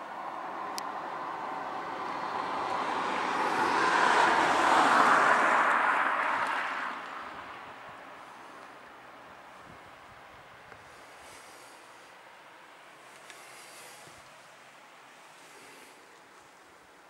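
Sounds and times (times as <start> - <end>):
small car driving past: 0.4 - 7.4.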